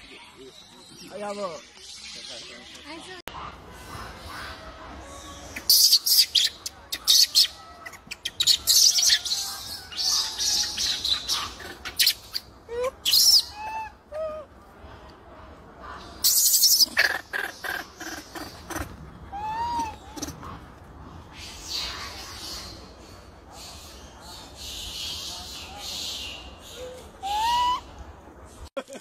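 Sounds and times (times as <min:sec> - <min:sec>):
whistled animal calls: 0:26.0 - 0:27.9.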